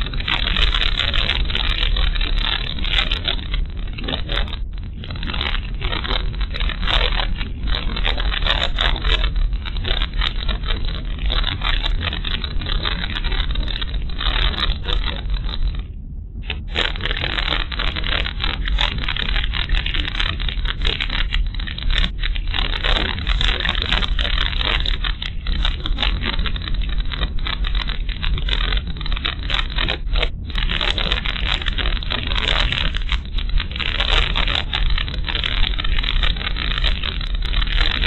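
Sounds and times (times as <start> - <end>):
crackling scraping noise: 0.0 - 38.0.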